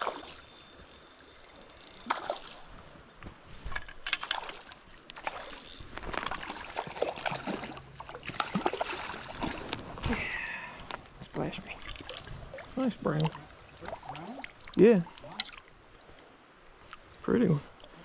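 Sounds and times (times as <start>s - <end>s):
fish splashing and thrashing: 0.0s - 18.0s
stream rushing: 4.4s - 18.0s.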